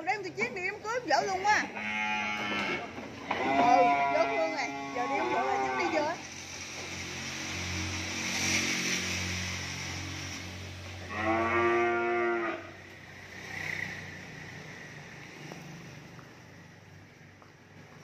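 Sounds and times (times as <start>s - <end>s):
cow mooing: 1.5s - 6.2s, 11.0s - 12.7s.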